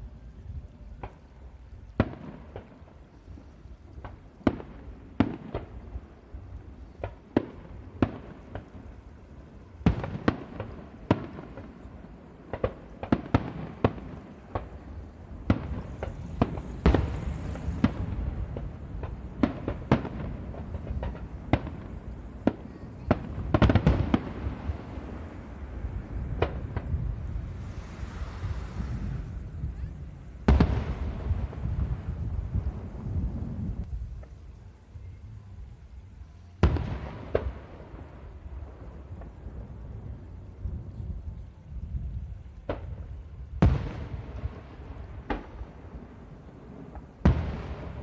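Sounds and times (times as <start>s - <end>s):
continuous low rumble: 0.0s - 48.0s
fireworks bursting: 0.8s - 48.0s
high hiss: 2.7s - 40.5s.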